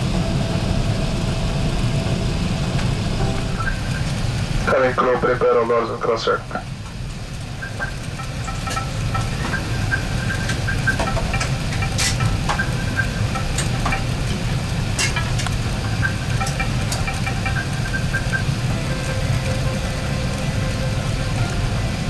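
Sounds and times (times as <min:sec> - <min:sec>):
aircraft cabin rumble: 0:00.0 - 0:22.0
faint clicks and rattles: 0:06.4 - 0:22.0.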